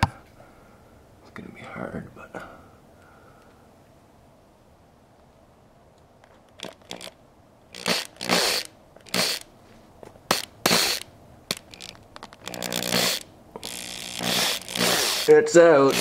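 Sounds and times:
power drill bursts: 0:07.7 - 0:09.5, 0:10.3 - 0:16.0.

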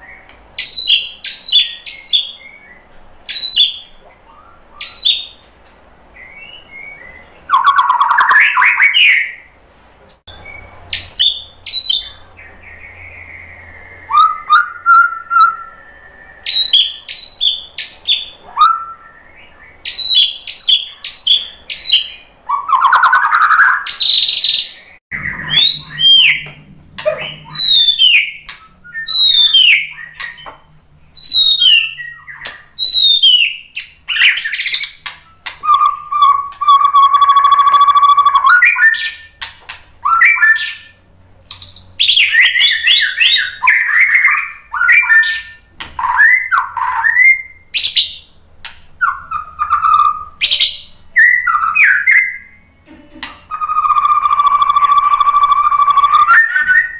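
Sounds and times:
bird singing whistled phrases: 0:00.0 - 0:05.4, 0:06.2 - 0:09.5, 0:10.3 - 0:26.5, 0:27.1 - 0:30.6, 0:31.2 - 0:39.4, 0:40.0 - 0:48.3, 0:49.0 - 0:52.7, 0:53.5 - 0:56.9
harsh rasping bird calls: 0:10.3 - 0:48.4
sharp falling whistle: 0:25.2 - 0:26.4.

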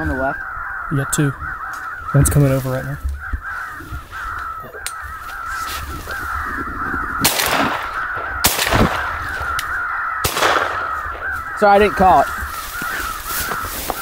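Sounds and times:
recorded crows cawing: 0:00.0 - 0:14.0
sharp bangs: 0:07.2 - 0:12.2.

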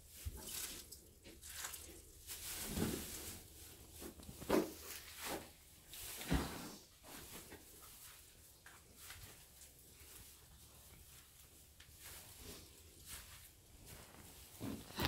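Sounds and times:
straw rustling: 0:00.1 - 0:06.2.

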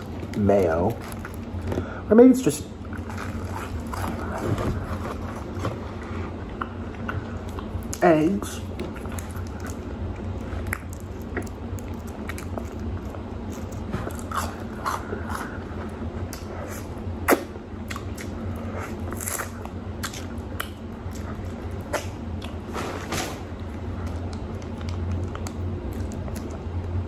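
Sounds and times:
close chewing: 0:02.9 - 0:05.8, 0:08.6 - 0:22.6, 0:23.7 - 0:27.0.

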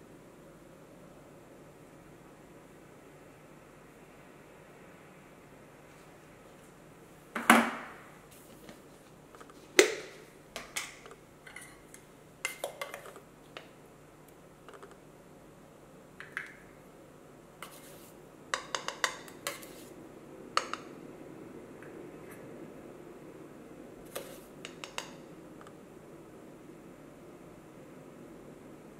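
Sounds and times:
spoon scraping metal tin: 0:11.4 - 0:11.9, 0:12.5 - 0:13.2, 0:17.6 - 0:18.2, 0:18.8 - 0:19.9
metallic knocks on coffee tin: 0:18.6 - 0:19.3.

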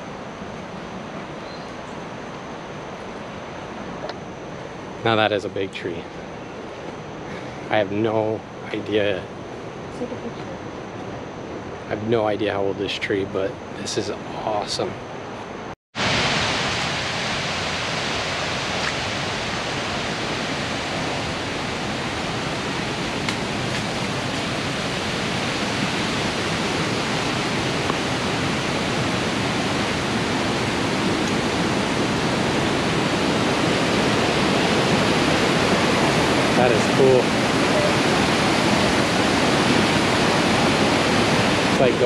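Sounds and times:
waterfall rushing: 0:16.0 - 0:42.0.

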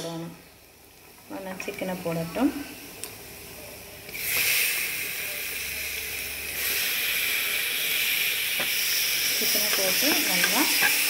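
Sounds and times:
chicken sizzling in oil: 0:04.2 - 0:11.0.

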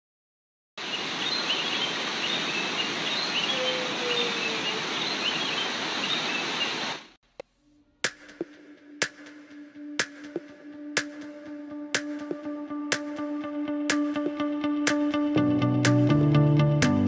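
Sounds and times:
stream rushing over rocks: 0:00.8 - 0:07.1
birds chirping: 0:00.8 - 0:07.2.

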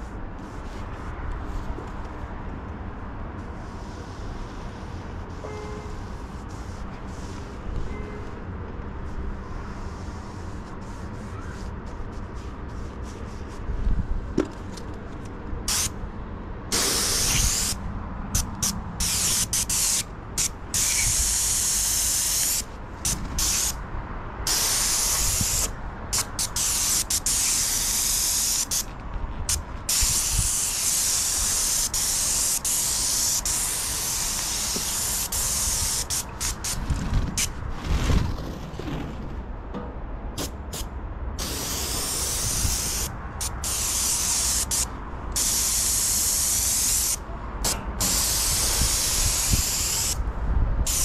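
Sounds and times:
paint spray gun hissing: 0:16.7 - 0:17.8, 0:18.4 - 0:23.8, 0:24.5 - 0:28.8, 0:29.9 - 0:36.8, 0:41.4 - 0:50.2.

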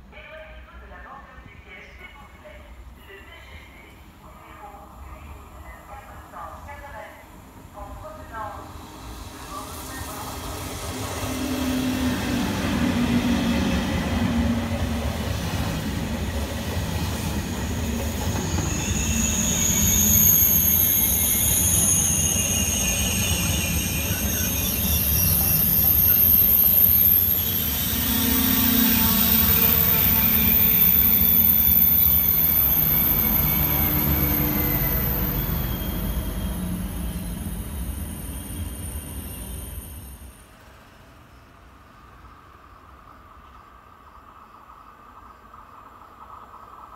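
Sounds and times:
high-pitched train whine: 0:04.4 - 0:43.4
train wheels rumbling on rails: 0:08.7 - 0:41.2.

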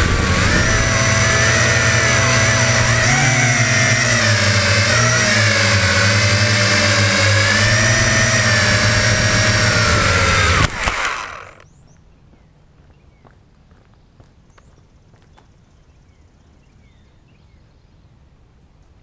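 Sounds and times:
quadcopter propellers whining: 0:00.0 - 0:11.6.

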